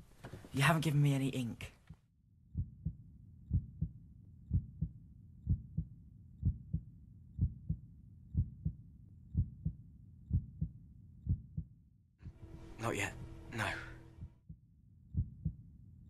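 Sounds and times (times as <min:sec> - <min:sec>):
human heartbeat: 0:02.6 - 0:12.5, 0:14.1 - 0:15.6.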